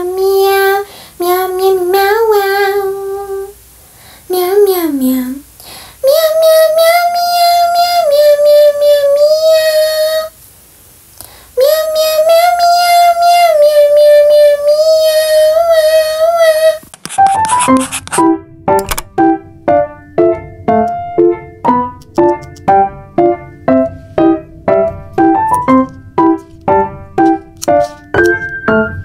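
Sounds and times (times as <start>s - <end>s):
high child-like voice singing: 0.0s - 3.6s, 4.3s - 5.4s, 6.0s - 10.4s, 11.6s - 16.8s.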